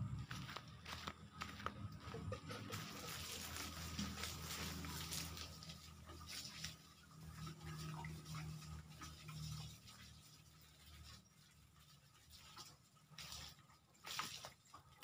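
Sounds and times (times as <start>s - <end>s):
footsteps on dry leaves: 0.0s - 7.0s.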